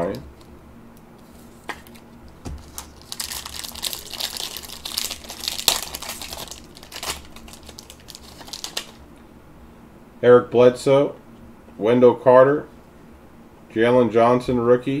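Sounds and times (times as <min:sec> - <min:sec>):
plastic wrapper crinkling: 0:01.6 - 0:09.0
sharp crackle of wrapper: 0:02.6 - 0:09.0.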